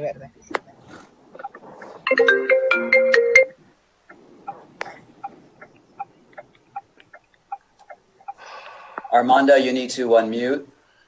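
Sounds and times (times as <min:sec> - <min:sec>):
phone ringtone: 0:02.1 - 0:03.6.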